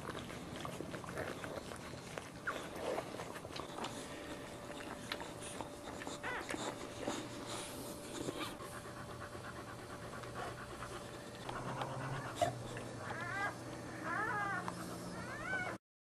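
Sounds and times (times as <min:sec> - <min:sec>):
wet licking: 0:00.0 - 0:13.2
dog panting: 0:00.0 - 0:15.8
puppies squealing: 0:11.9 - 0:15.8.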